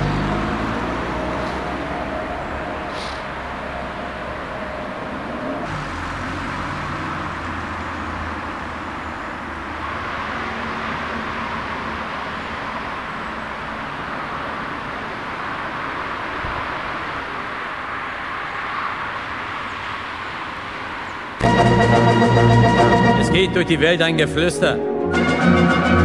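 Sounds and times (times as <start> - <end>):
outdoor noise: 0.0 - 23.0
car engine hum: 0.0 - 23.2.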